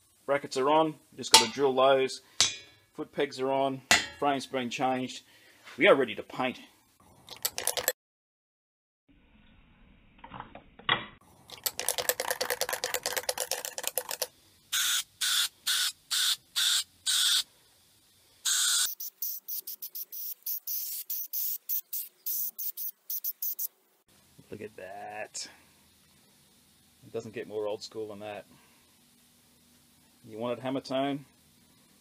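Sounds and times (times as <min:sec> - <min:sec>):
spray can ball rattling: 0:07.4 - 0:07.9, 0:11.5 - 0:14.3, 0:18.8 - 0:23.7
spray paint hissing: 0:13.4 - 0:17.5, 0:18.4 - 0:23.7.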